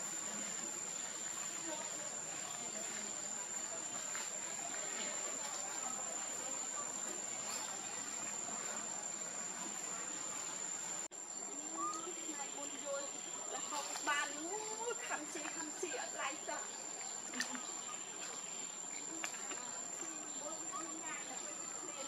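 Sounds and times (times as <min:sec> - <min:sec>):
faint outdoor hiss: 0:00.0 - 0:22.0
insects droning: 0:00.0 - 0:22.0.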